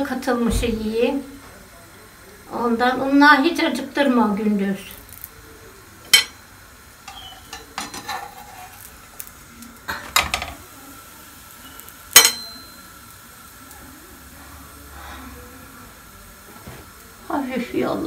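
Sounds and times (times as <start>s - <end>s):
metal tongs clacking on pan: 6.1s - 6.4s, 7.0s - 10.6s, 11.8s - 12.9s.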